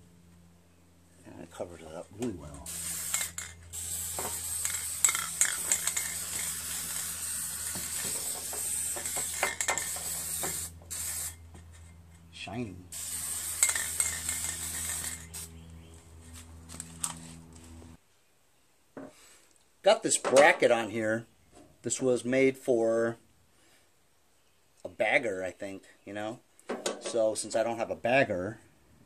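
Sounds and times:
steady low hum: 0.0s - 18.0s
spray paint can hissing: 2.7s - 11.4s, 12.9s - 15.7s.

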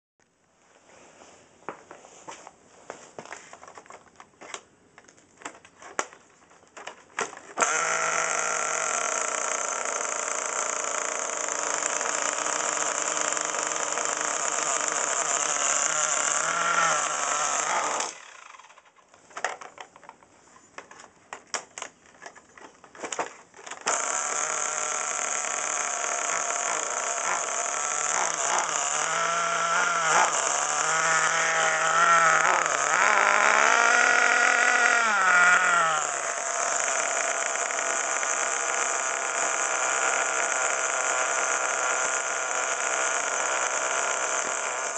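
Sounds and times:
starter clicks: 3.7s - 44.9s
small nitro engine running: 7.6s - 19.0s, 23.8s - 44.9s.

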